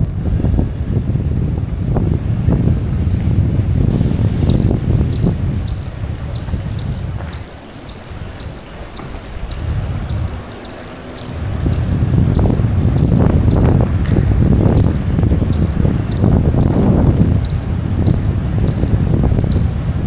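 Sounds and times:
wind rumbling on microphone: 0.0s - 20.0s
insect chirping: 4.5s - 19.8s.

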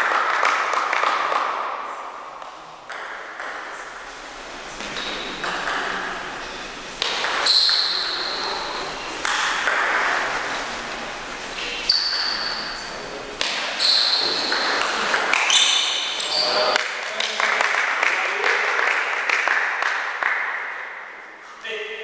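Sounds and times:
table tennis ball bouncing: 2.4s - 4.0s, 4.8s - 10.8s, 11.6s - 16.9s
sharp clicks echoing: 4.8s - 10.6s.

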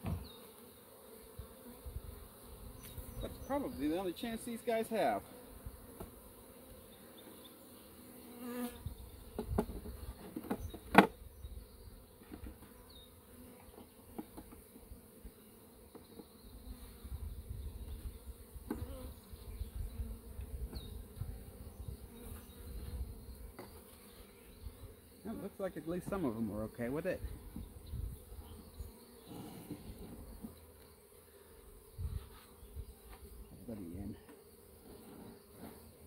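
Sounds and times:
knocks from handling hive: 0.0s - 0.4s, 9.3s - 11.2s, 13.7s - 14.7s, 18.6s - 19.0s
honeybees buzzing: 0.0s - 36.0s.

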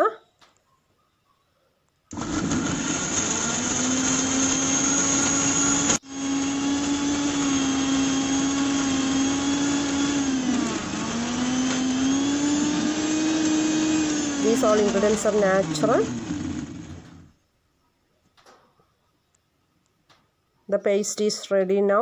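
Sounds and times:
mixer grinder running: 2.1s - 17.3s.

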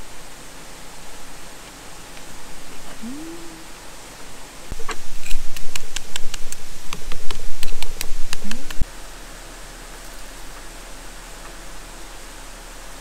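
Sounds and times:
person humming: 3.0s - 3.9s.

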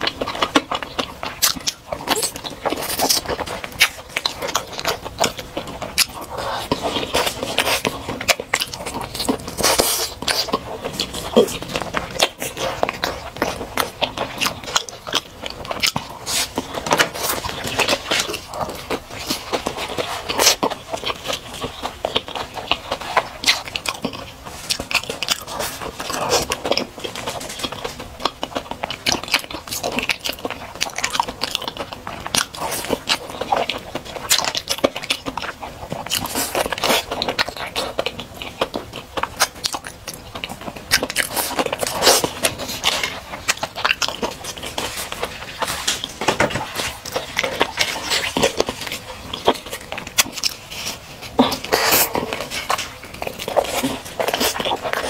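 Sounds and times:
crunchy chewing: 0.0s - 55.0s.

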